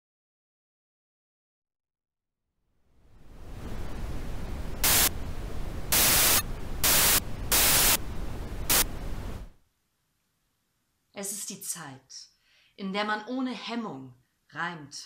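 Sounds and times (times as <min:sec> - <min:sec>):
low hum: 0:03.0 - 0:09.6
television static hiss: 0:03.1 - 0:09.8.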